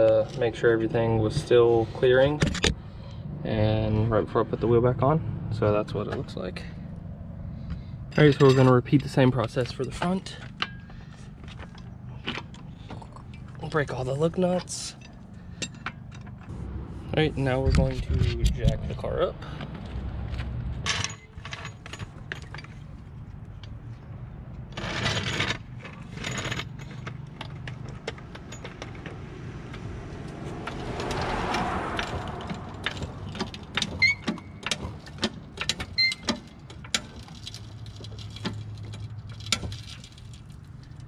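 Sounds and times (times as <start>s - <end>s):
jack metallic clicks and rattles: 24.6s - 41.0s.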